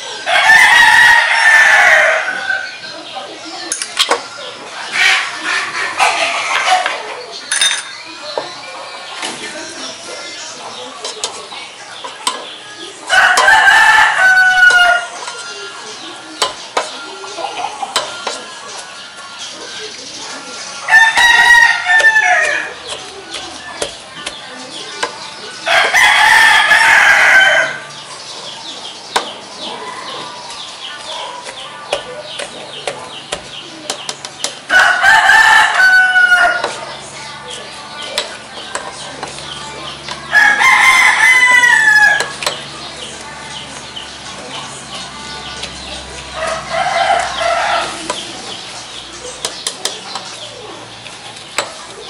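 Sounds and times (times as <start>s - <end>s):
rooster crowing: 0.3s - 2.8s, 13.1s - 15.2s, 20.9s - 22.7s, 25.7s - 27.9s, 34.7s - 36.7s, 40.3s - 42.3s
chicken calling: 4.3s - 7.5s, 12.6s - 38.1s
potato masher in steel pot: 9.9s - 17.1s, 17.8s - 19.0s, 20.2s - 26.0s, 31.4s - 34.8s, 35.8s - 40.6s, 41.2s - 52.0s.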